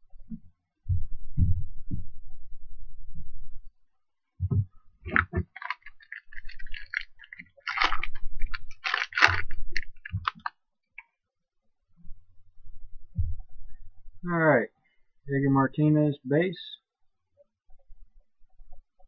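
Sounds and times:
low handling thumps: 0.9 - 2.3
foil wrapper tearing and crinkling: 5.1 - 10.5.

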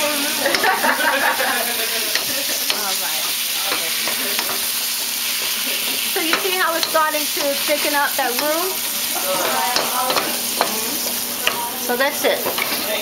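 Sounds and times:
vegetables sizzling in a pan: 0.0 - 13.0
spoon knocking against pan: 2.1 - 8.6.

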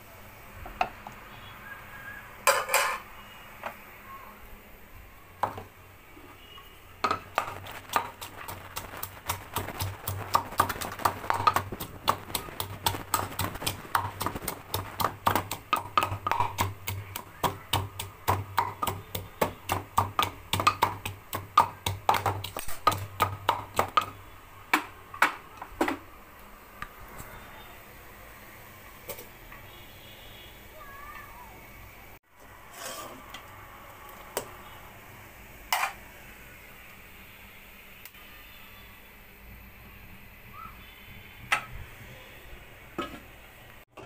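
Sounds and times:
pounding in a terracotta bowl: 9.0 - 24.1.

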